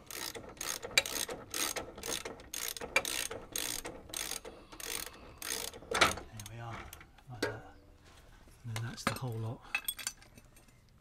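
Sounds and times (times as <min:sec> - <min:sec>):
socket ratchet clicking: 0:00.1 - 0:06.6.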